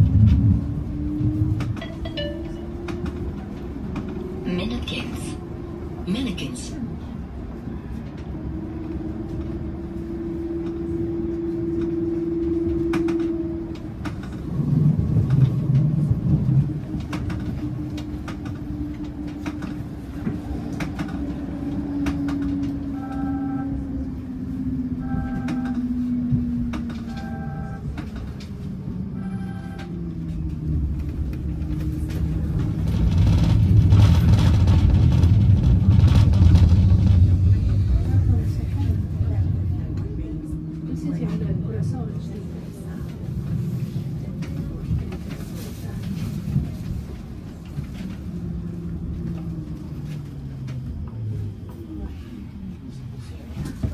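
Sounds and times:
tram motor whine: 0.0 - 6.0, 6.7 - 53.9
tram wheels rumbling on rails: 0.0 - 53.9
short beeps: 1.8 - 2.7.

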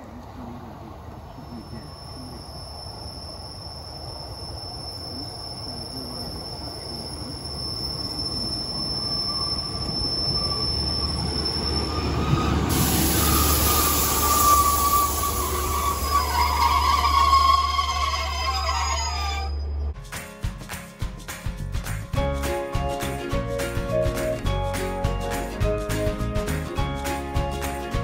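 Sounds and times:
train hiss: 0.0 - 19.3
diesel train approaching: 0.0 - 20.0, 22.0 - 28.0
wheel squeal: 1.4 - 20.0.

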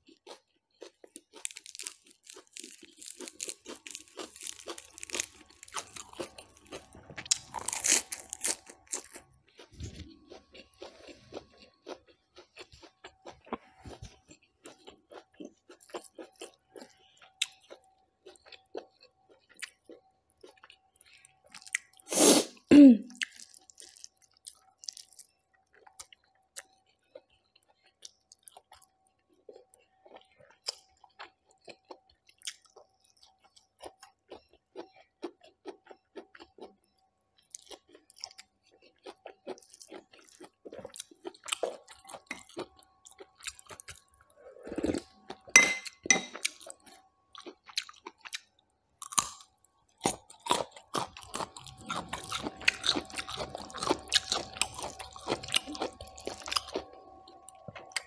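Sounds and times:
chewing and wet mouth sounds: 0.0 - 22.1, 23.2 - 58.0
crunching bites: 0.2 - 12.9.

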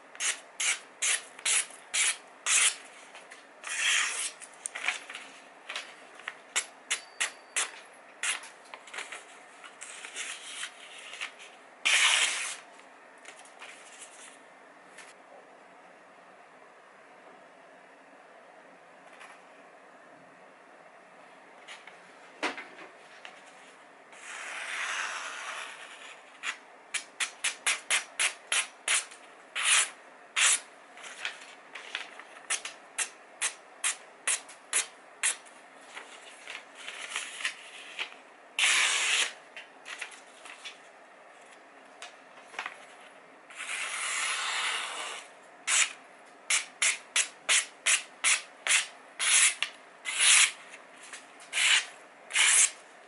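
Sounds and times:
paper rustling: 7.7 - 12.7, 31.0 - 32.4, 42.4 - 43.2.

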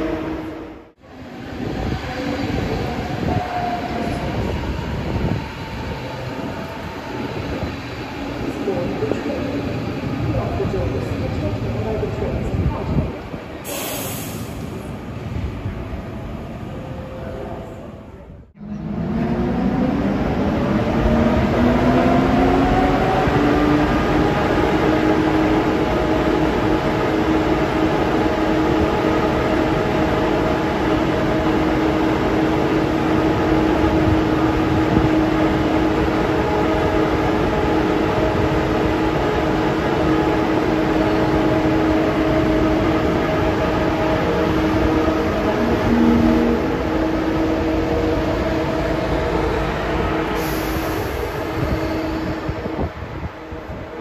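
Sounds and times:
train blowers whining: 18.6 - 54.0.

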